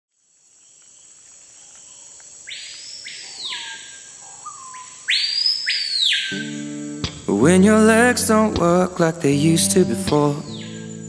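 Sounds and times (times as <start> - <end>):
high-pitched insect drone: 6.3 - 11.0.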